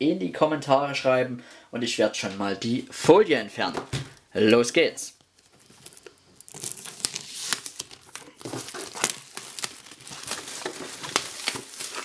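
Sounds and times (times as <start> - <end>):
plastic film tearing and crinkling: 5.2 - 12.0.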